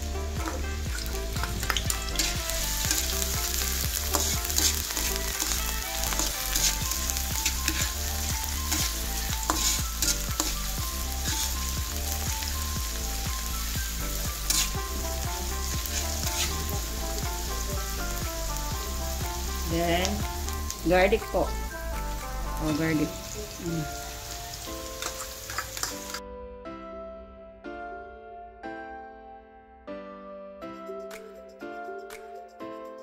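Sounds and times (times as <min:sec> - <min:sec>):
onion sizzling in hot oil: 0:00.0 - 0:26.2
spatula scraping pan: 0:02.0 - 0:11.7, 0:14.4 - 0:14.9, 0:15.6 - 0:16.7.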